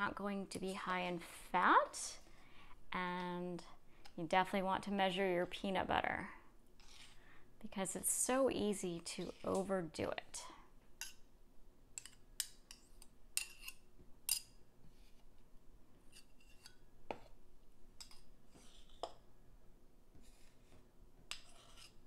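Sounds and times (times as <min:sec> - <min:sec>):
metal spoon clinking and scraping: 0:12.0 - 0:14.6.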